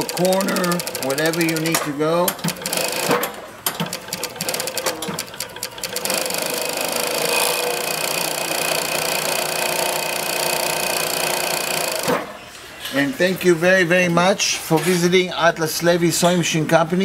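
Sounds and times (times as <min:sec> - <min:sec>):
sewing machine stitching: 0:00.0 - 0:01.8, 0:02.4 - 0:12.3.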